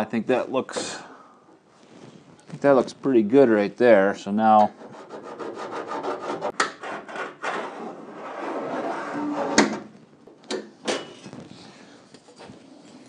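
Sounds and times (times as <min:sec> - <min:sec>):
metal scribe scratching steel: 0:04.7 - 0:09.6.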